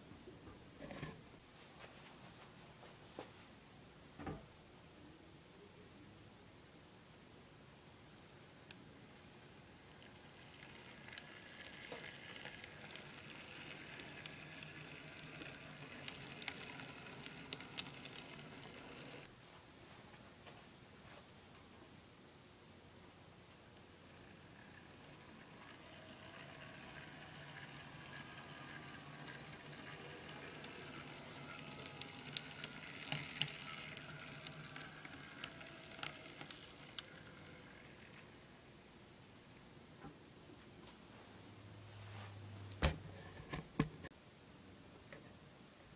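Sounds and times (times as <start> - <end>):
model steam locomotive whir and hiss: 9.8 - 19.3, 24.1 - 38.8.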